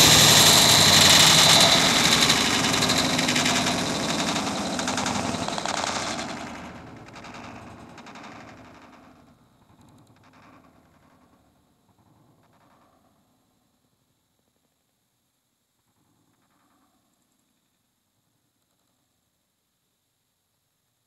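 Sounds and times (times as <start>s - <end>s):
rapid rattling clicks: 0.0s - 9.2s.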